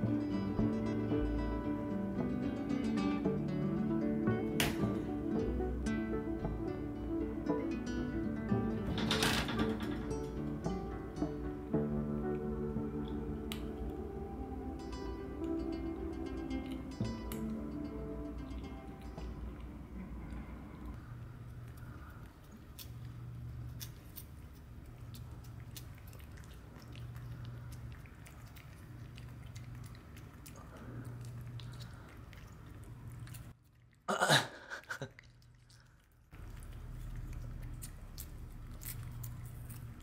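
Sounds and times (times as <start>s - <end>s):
cats licking and chewing: 12.3s - 40.0s.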